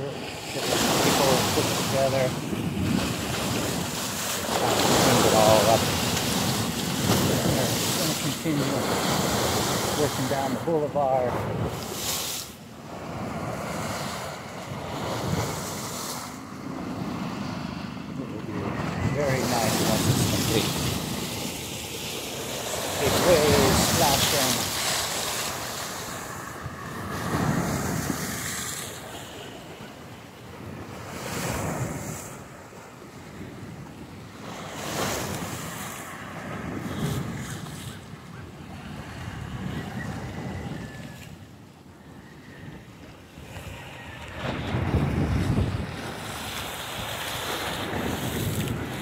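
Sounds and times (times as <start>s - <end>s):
wind buffeting microphone: 0.0s - 12.1s, 13.0s - 32.6s, 33.4s - 49.0s
sea waves washing against rocks: 0.0s - 39.7s, 43.1s - 49.0s.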